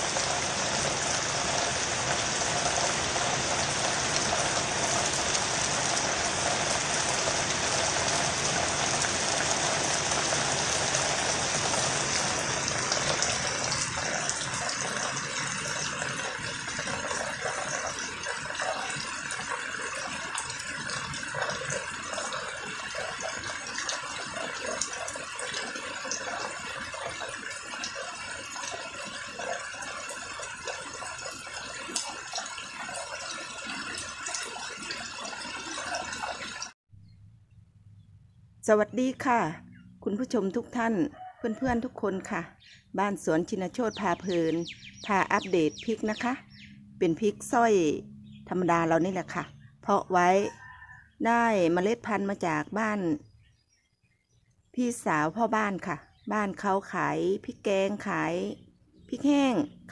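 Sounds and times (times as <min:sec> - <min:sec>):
rain falling on plants: 0:00.0 - 0:36.8
raindrops tapping: 0:00.0 - 0:36.8.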